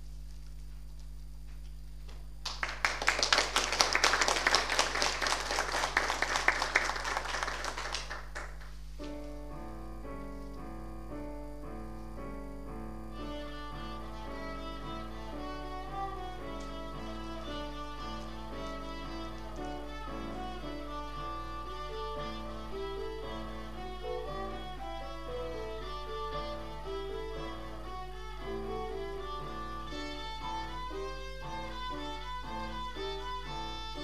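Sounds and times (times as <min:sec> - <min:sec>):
audience applauding: 0:02.4 - 0:08.8
violin and keyboard piece: 0:12.8 - 0:34.0.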